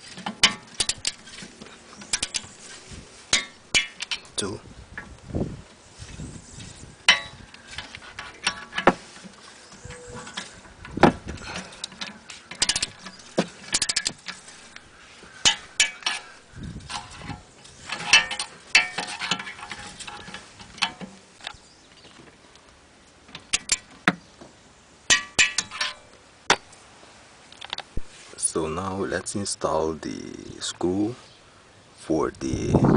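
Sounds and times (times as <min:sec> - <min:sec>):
tools clinking on steel: 0:00.0 - 0:02.6, 0:03.3 - 0:04.4, 0:07.1 - 0:08.9, 0:11.4 - 0:14.8, 0:15.4 - 0:21.6, 0:25.1 - 0:26.2.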